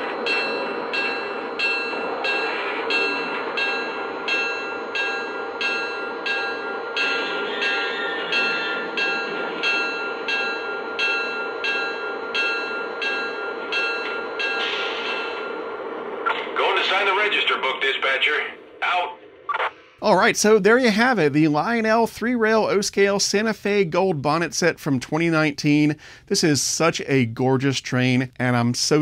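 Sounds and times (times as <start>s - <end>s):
model train bell ringing: 0.0s - 16.0s
model train rolling on track: 0.0s - 18.4s.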